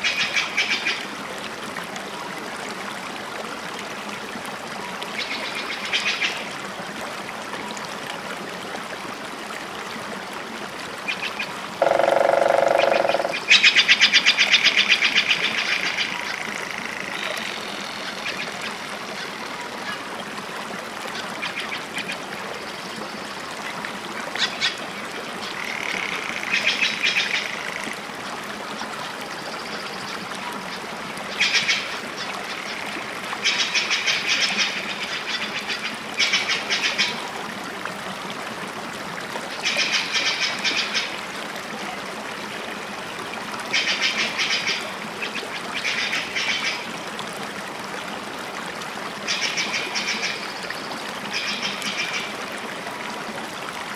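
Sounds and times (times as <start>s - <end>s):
running water: 0.0s - 53.9s.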